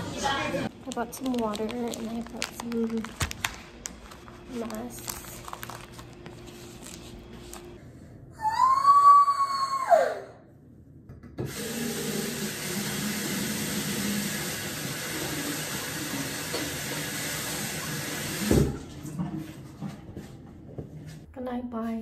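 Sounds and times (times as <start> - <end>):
high wail dropping in pitch: 8.3 - 10.4
sink tap running: 11.4 - 18.8.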